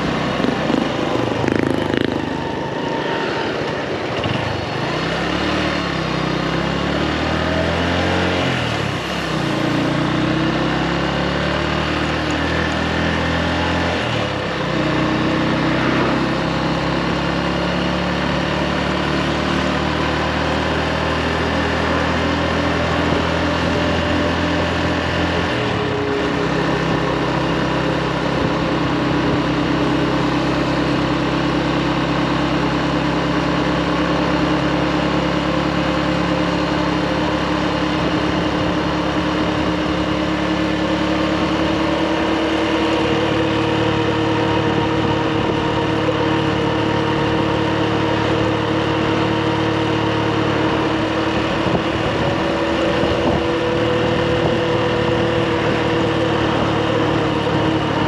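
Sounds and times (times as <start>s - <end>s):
motorbike engine running: 0.0s - 58.0s.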